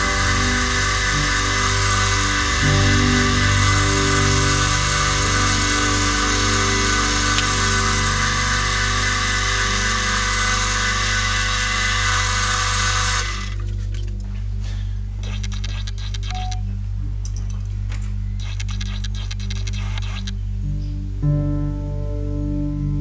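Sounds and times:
wood lathe motor hum: 0:00.0 - 0:13.7.

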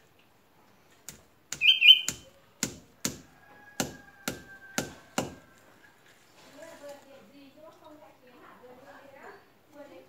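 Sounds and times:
hammer knocking nails into wood: 0:01.1 - 0:05.4.

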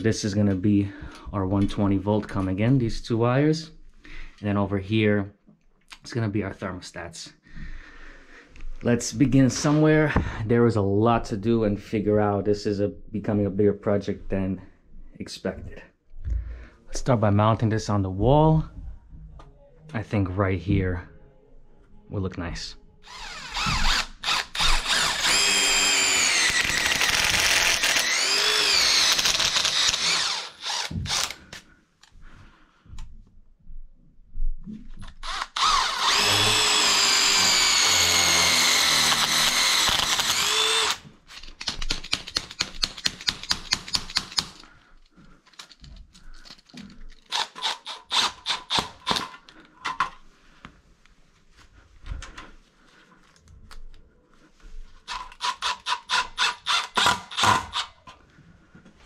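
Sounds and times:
cordless drill boring into masonry: 0:23.0 - 0:31.4, 0:35.1 - 0:44.6, 0:47.3 - 0:49.3, 0:55.1 - 0:58.0
drill rattling clicks driving screws: 0:23.1 - 0:31.4, 0:35.1 - 0:44.6, 0:45.5 - 0:49.5.

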